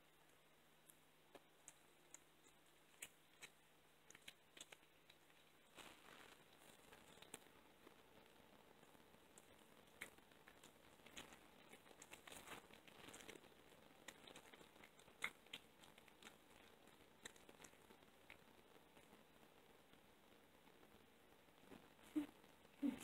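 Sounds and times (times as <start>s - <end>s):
cat chewing raw meat: 1.4s - 7.5s, 9.3s - 19.1s.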